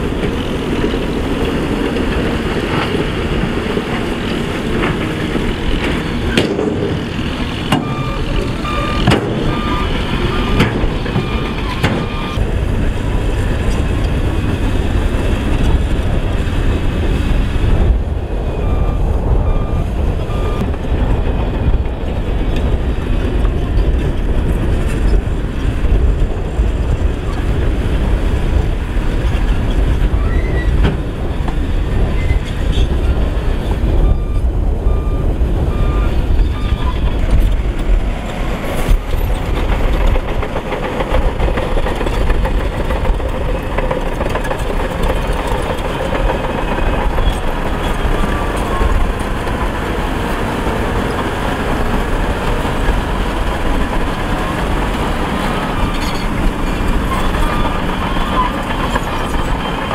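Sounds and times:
diesel engines running: 0.0 - 59.9
reversing alarm beeping: 7.7 - 12.4, 18.5 - 20.7, 34.0 - 37.0.

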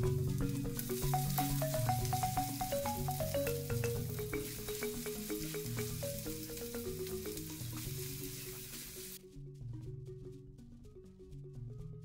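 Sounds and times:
background music of single notes: 0.0 - 12.0
onion sizzling in oil: 0.8 - 9.2.

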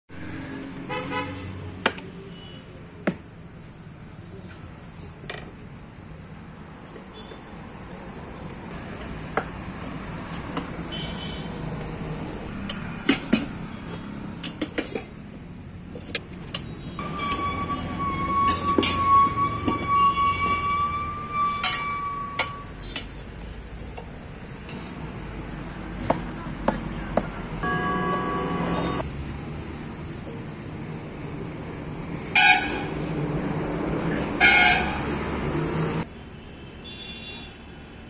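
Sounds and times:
background noise: 0.1 - 38.0
steady high tone: 17.0 - 22.8, 27.6 - 29.1.

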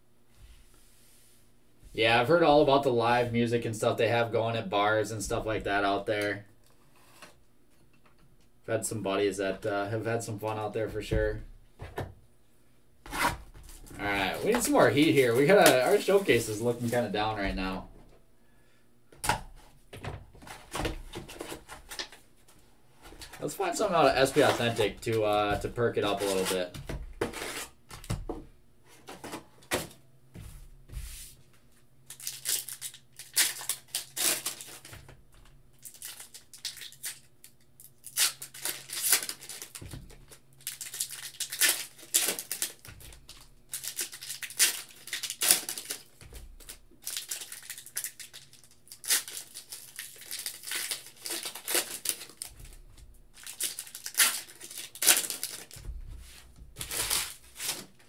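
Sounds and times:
foil wrappers crinkling and tearing: 13.7 - 17.4, 23.1 - 27.8, 32.1 - 35.0, 35.8 - 55.9, 56.8 - 58.0.

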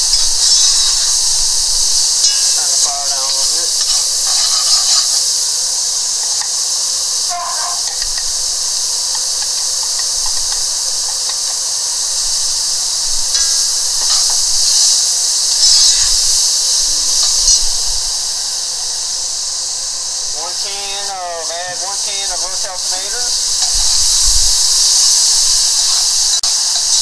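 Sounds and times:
vegetables sizzling in oil: 0.0 - 27.0
metal spoon stirring pot: 2.2 - 5.2.

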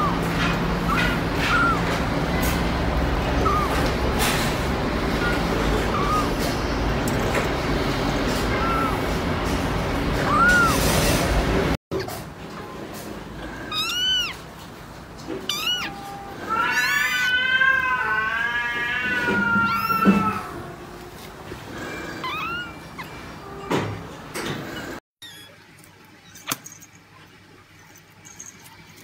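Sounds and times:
kitten mewing: 0.0 - 2.6, 3.2 - 6.5, 8.4 - 9.1, 10.2 - 10.9, 13.6 - 14.4, 15.4 - 20.6, 22.2 - 23.2.

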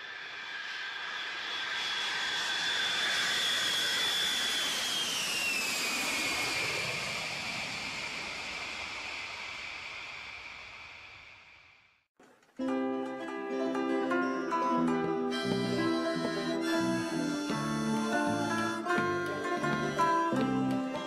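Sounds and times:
jet airliner taking off: 0.0 - 12.0.

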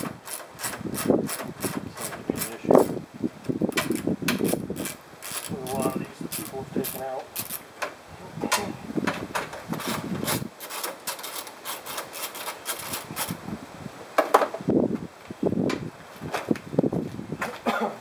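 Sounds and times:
plastic grille scraping and clicking: 9.4 - 13.4.

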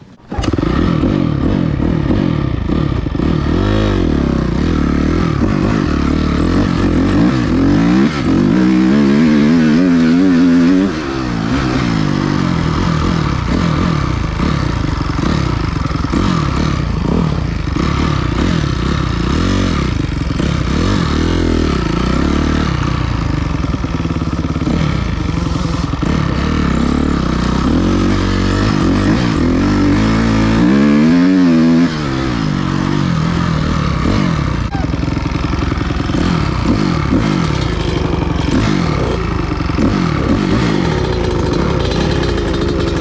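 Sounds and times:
dirt bike engine revving: 0.0 - 43.0.

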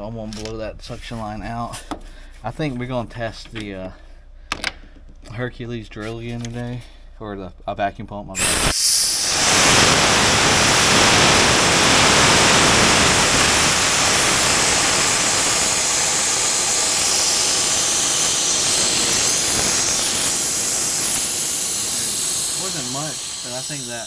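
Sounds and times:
gas hissing from pipe: 8.4 - 24.0.

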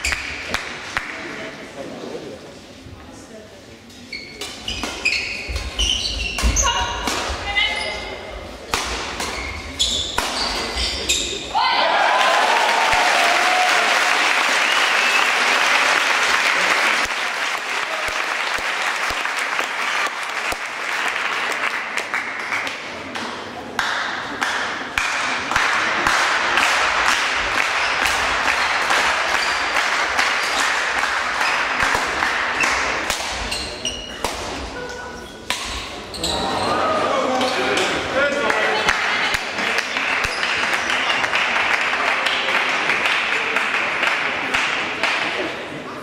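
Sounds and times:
crowd applauding: 11.8 - 22.8.

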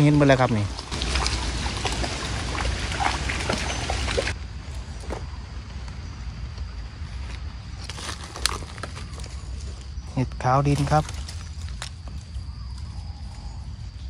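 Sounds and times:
floodwater splashing: 0.0 - 4.4.

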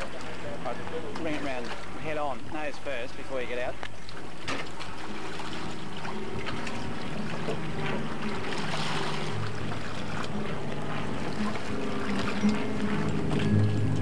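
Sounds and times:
water sloshing against hull: 0.0 - 14.0
low hum: 4.8 - 14.0.

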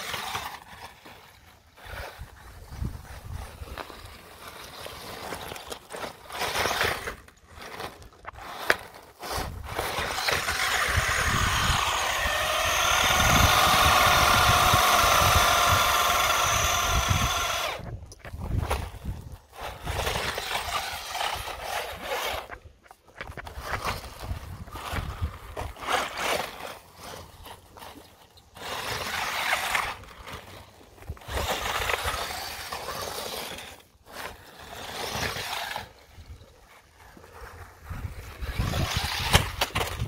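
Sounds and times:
toy car electric motor whining: 8.4 - 22.6, 23.7 - 36.5, 38.1 - 40.0.

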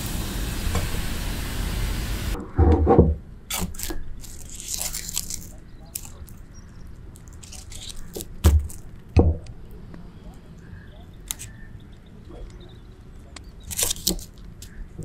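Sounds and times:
hot oil hissing: 0.0 - 2.4
crunchy rustling of fried food: 3.5 - 12.0, 12.7 - 15.0.

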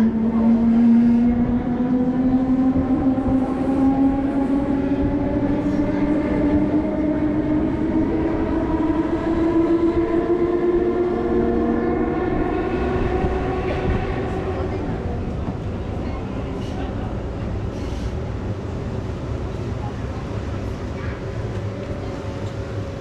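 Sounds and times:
steady rising tone: 0.0 - 15.3
train wheels rumbling: 0.0 - 23.0.

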